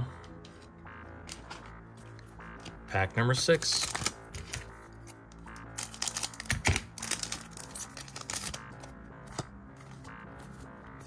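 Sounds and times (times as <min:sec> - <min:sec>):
background music: 0:00.0 - 0:11.0
wrapper tearing and crinkling: 0:05.8 - 0:08.6.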